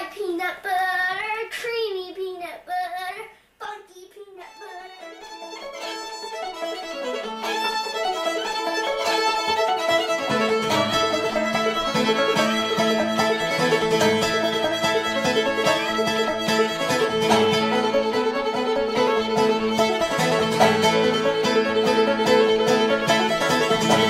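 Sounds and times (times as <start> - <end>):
fiddle: 4.4 - 24.0
picked banjo: 4.4 - 24.0
upright bass: 7.5 - 24.0
acoustic guitar: 8.4 - 24.0.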